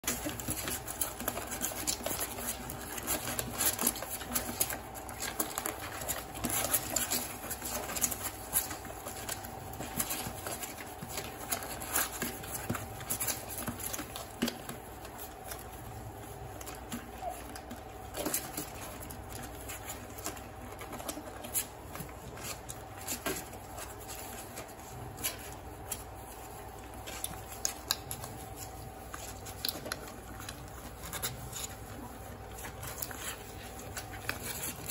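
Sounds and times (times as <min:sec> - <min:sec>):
faint steady hum: 0:00.0 - 0:34.9
puppies suckling: 0:00.0 - 0:34.9.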